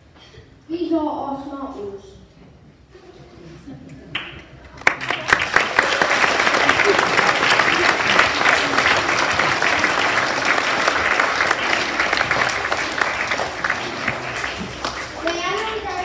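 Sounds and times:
audience applauding: 0:04.1 - 0:16.0.

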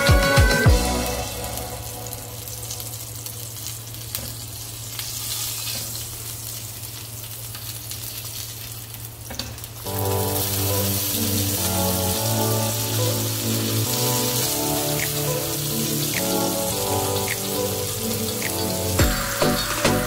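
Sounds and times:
music: 0:00.0 - 0:02.8, 0:09.9 - 0:20.0
patties sizzling in hot oil: 0:00.7 - 0:20.0.

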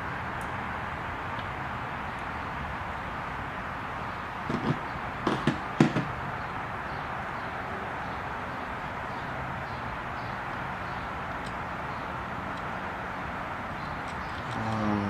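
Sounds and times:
small tools clicking: 0:14.0 - 0:14.8.

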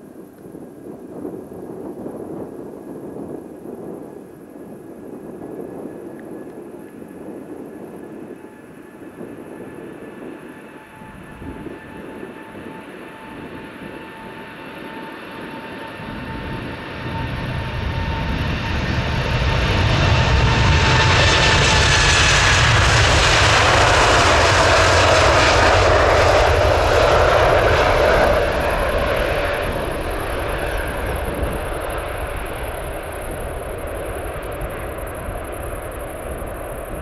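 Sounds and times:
jet engines at takeoff: 0:00.0 - 0:37.0
deep rumble: 0:15.9 - 0:37.0.

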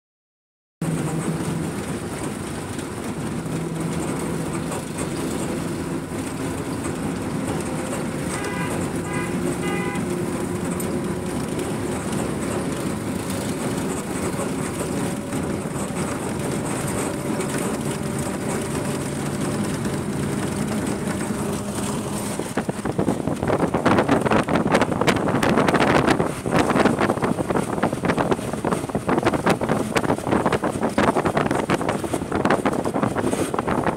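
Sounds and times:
vehicle engine and road noise: 0:00.8 - 0:33.9
wind buffeting microphone: 0:00.9 - 0:33.9
car horn honks: 0:08.2 - 0:10.6.

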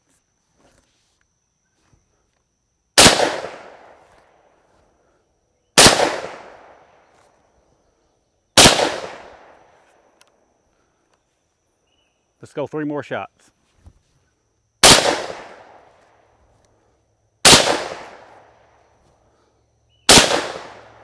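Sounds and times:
shotgun shots ringing: 0:03.0 - 0:04.0, 0:05.8 - 0:06.8, 0:08.6 - 0:09.6, 0:14.8 - 0:15.8, 0:17.4 - 0:18.4, 0:20.1 - 0:21.0.

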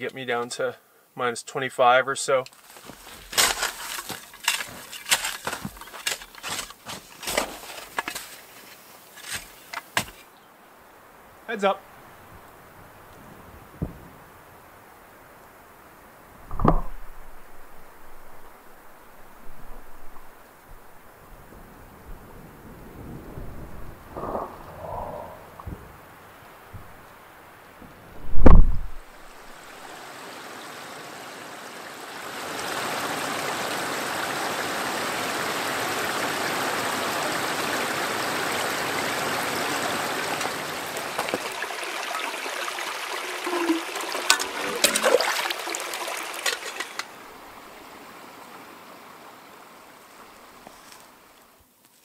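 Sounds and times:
rushing water-like noise: 0:02.5 - 0:51.6
clicks and knocks: 0:16.4 - 0:17.0, 0:46.4 - 0:47.1
loud low thump: 0:28.2 - 0:29.0.

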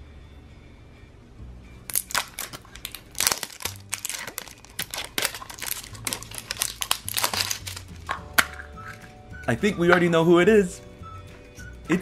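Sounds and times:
soft background music: 0:00.0 - 0:12.0
plastic wrapping crinkling: 0:01.9 - 0:09.1.

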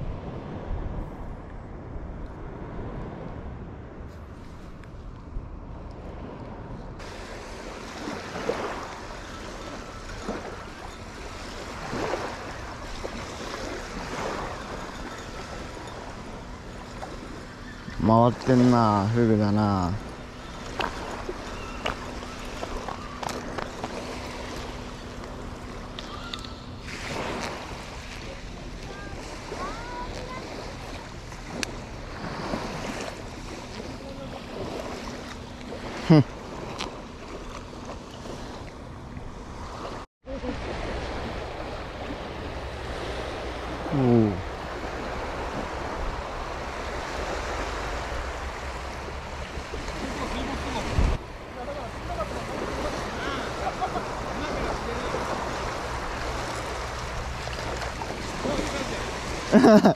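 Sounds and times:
wind on microphone: 0:00.0 - 0:24.8, 0:40.6 - 0:51.6
surf washing: 0:00.0 - 0:59.9
wave rushing up beach: 0:07.0 - 0:36.8, 0:39.4 - 0:59.9.

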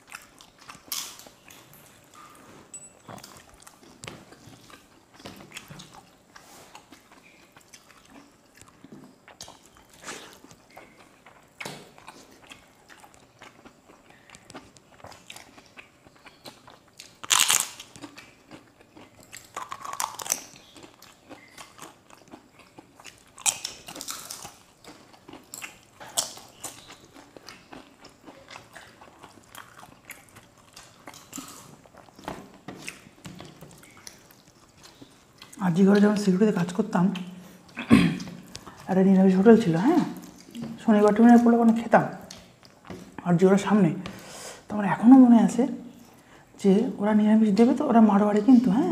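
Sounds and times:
chewing: 0:00.0 - 0:43.3
crisp cracker crunching: 0:13.0 - 0:32.2.

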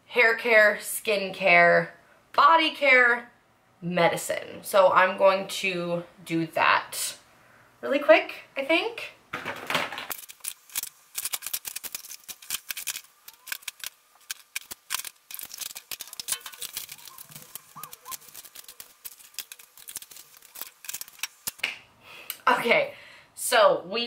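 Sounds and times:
plastic bottles and boxes clattering: 0:09.3 - 0:10.4.

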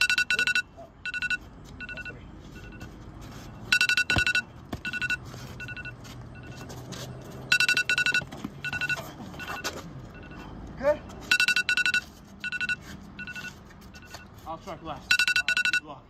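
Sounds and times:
ringtone trilling beeps: 0:00.0 - 0:03.0, 0:03.6 - 0:06.7, 0:07.5 - 0:10.4, 0:11.3 - 0:14.3, 0:15.1 - 0:15.9.

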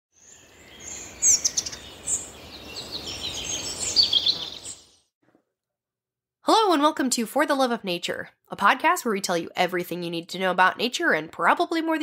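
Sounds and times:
birds chirping and whistling: 0:00.2 - 0:05.0.

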